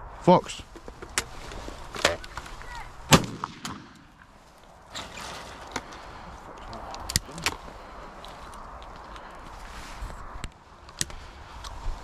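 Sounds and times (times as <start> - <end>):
rustling handling noise: 0.6 - 3.1.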